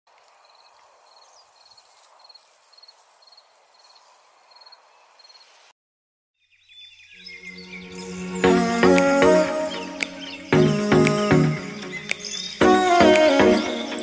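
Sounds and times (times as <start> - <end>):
soft outdoor hiss: 0.1 - 5.7
faint cricket chirping: 0.2 - 5.7
music: 7.7 - 14.0.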